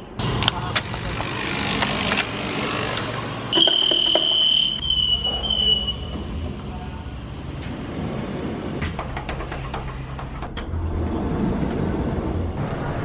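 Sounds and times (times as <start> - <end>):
electronic beeper beeps: 3.5 - 6.2.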